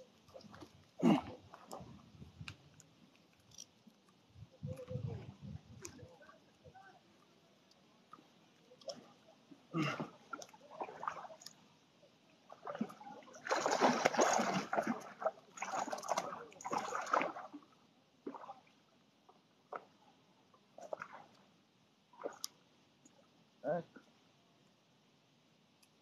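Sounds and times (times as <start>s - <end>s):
fish splashing and thrashing in water: 10.2s - 11.6s, 12.6s - 17.6s.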